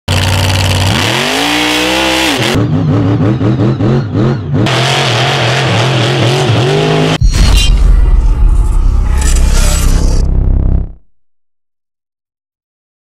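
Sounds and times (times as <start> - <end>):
truck engine revving hard: 0.1 - 7.2.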